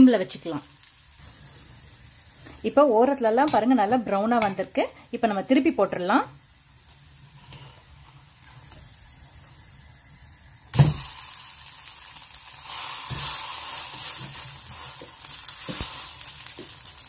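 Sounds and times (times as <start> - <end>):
oil sizzling loudly: 0.0 - 4.4, 5.0 - 17.0
pancake thud into pan: 10.8 - 11.1.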